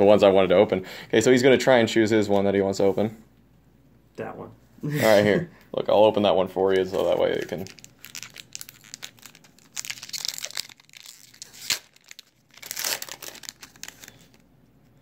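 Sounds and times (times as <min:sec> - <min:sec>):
foil wrapper tearing and crinkling: 0:07.0 - 0:14.4.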